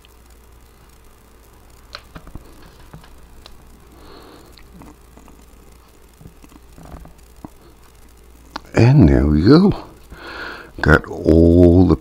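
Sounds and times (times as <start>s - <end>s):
faint clicks: 0.0s - 8.7s
low steady hum: 0.0s - 12.0s.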